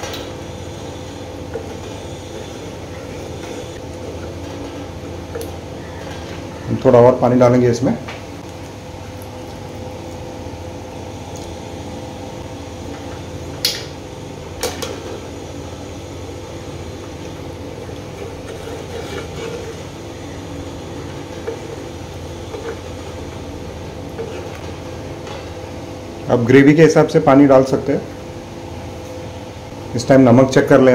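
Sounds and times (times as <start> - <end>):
steady low hum: 0.0 - 30.9
spatula stirring thick curry: 17.8 - 20.0.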